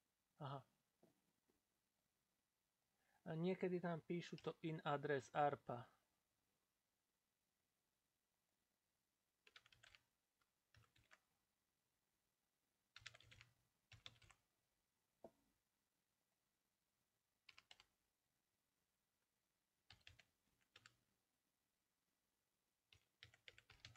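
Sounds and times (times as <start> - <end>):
computer keyboard typing: 9.4 - 10.0, 10.7 - 11.2, 13.0 - 14.4, 17.4 - 17.9, 19.8 - 21.0, 22.9 - 23.9.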